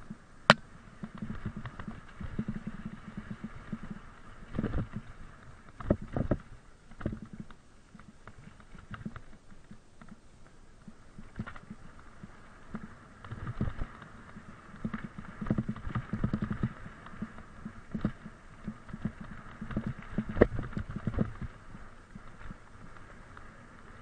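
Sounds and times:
mountain bike rattling on trail: 0:00.0 - 0:24.0.

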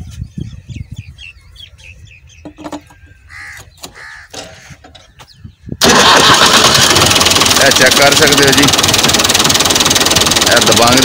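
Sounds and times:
crow cawing: 0:02.9 - 0:04.8
tractor diesel engine running: 0:05.8 - 0:11.0.

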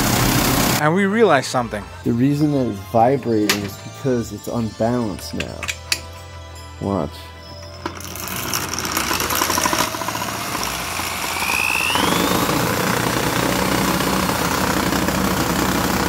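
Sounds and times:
electric drill whining: 0:00.0 - 0:00.8, 0:07.3 - 0:16.0
engine crank rattling: 0:07.6 - 0:16.0.

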